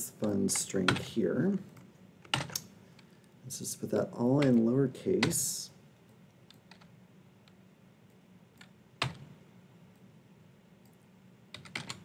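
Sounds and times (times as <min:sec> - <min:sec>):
keyboard keys clicking: 0:06.5 - 0:06.9, 0:08.6 - 0:09.3, 0:10.8 - 0:12.0.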